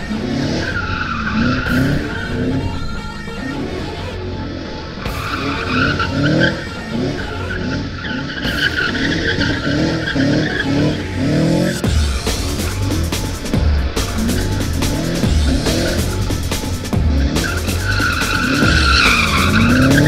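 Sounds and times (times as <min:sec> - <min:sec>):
tyres squealing: 0:00.0 - 0:11.9, 0:12.6 - 0:20.0
car engine revving: 0:00.0 - 0:20.0.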